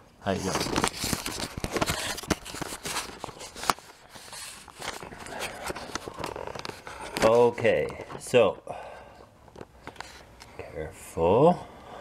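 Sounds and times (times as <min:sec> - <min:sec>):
camera handling rustling: 0:00.4 - 0:08.2.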